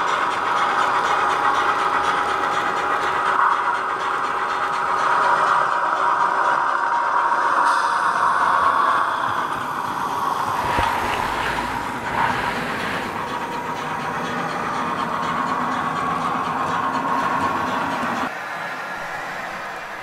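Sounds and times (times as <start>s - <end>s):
rolling wheel noise: 10.2s - 14.4s.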